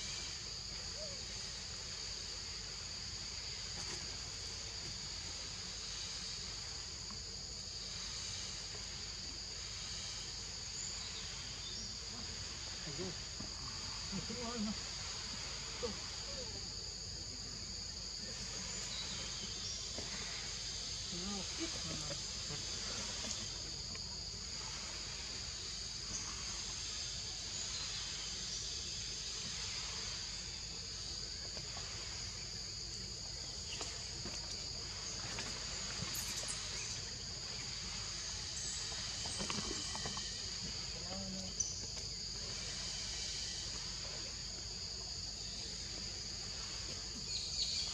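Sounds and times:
high-pitched insect chorus: 0.0s - 47.9s.

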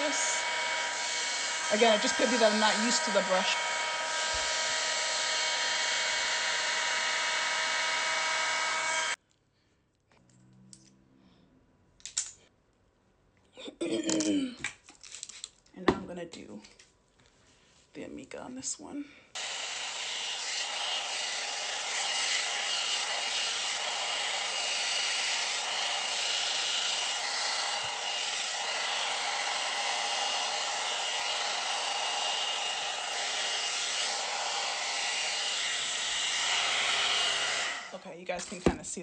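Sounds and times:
blow dryer brush running: 0.0s - 9.2s, 19.4s - 39.0s.

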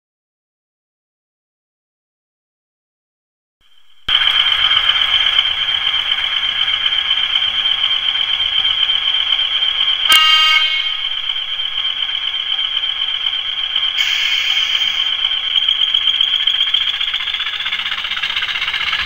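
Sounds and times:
diesel engine sound through speaker: 4.1s - 19.0s
short horn toot: 10.1s - 11.0s.

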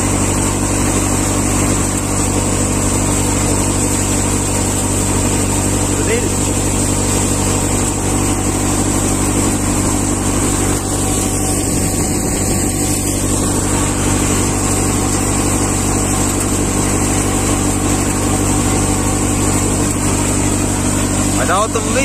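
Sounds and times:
thresher machine drone: 0.0s - 22.0s.

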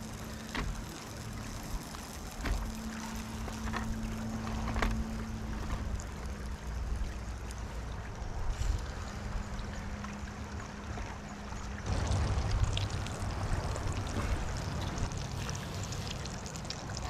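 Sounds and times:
faint steady hum: 0.0s - 17.0s
wind rumble on microphone: 0.0s - 17.0s.

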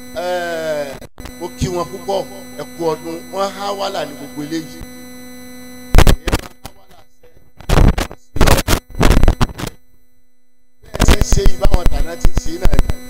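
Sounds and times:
electrical hum: 0.0s - 13.0s
loud clipped thumps and bursts: 5.9s - 6.6s, 7.6s - 9.8s.

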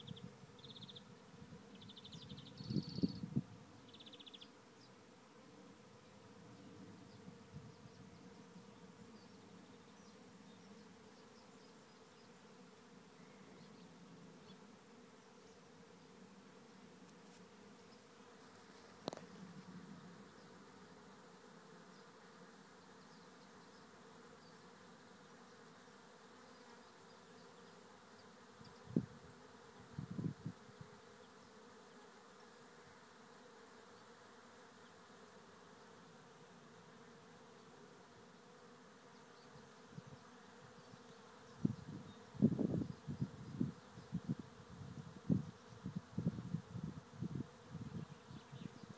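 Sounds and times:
bee swarm buzzing: 10.2s - 48.9s.

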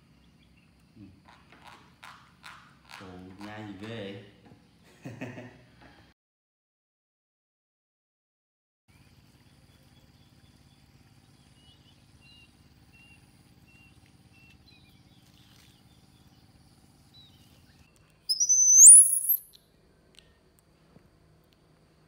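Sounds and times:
baby monkey squealing: 18.3s - 19.4s
faint chirps: 18.3s - 19.6s.

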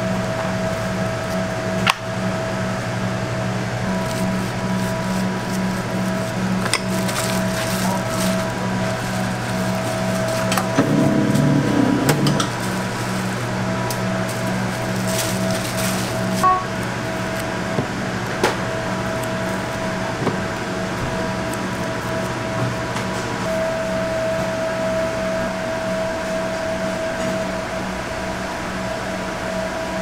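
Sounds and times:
electrical hum of kitchen machinery: 0.0s - 30.0s
aluminium foil crinkling: 3.9s - 10.8s, 12.5s - 23.3s
pulsing tone: 16.4s - 16.8s.

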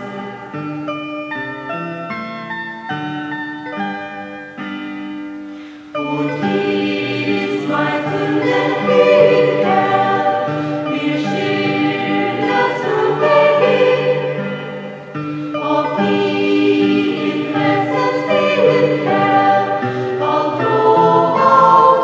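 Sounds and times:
choir singing: 0.0s - 0.6s, 6.0s - 22.0s
instrumental accompaniment: 0.0s - 22.0s.

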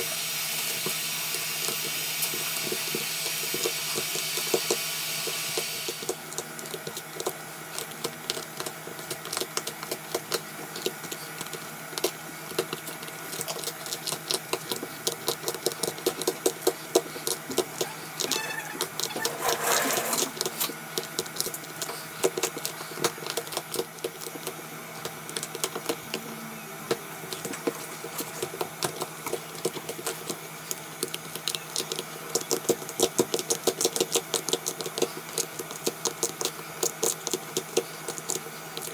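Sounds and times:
metal tools scraping glass: 18.3s - 20.4s.

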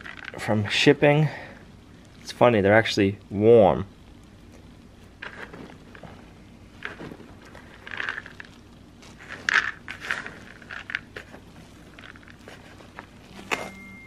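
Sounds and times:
pellets rustling and crunching: 0.0s - 0.7s, 4.5s - 13.8s.

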